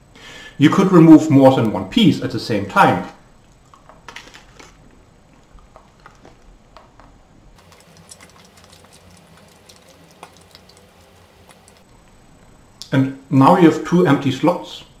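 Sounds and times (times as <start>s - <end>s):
chewing chocolate: 4.6s - 12.0s.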